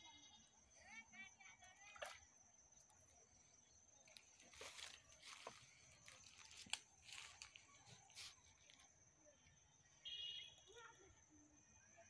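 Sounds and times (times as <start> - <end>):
soft clicks and crackles: 4.1 - 8.9.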